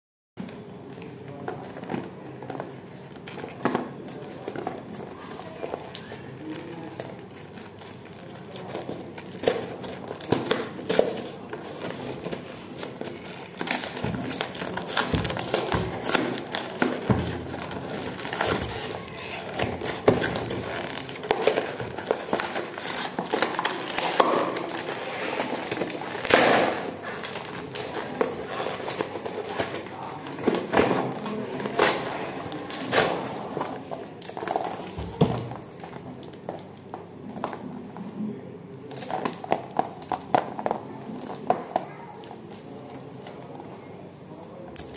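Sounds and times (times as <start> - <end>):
cardboard box crinkling: 10.9 - 30.2.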